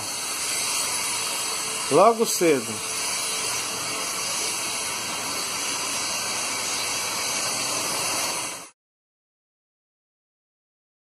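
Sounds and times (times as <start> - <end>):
outdoor background hiss: 0.0 - 8.7.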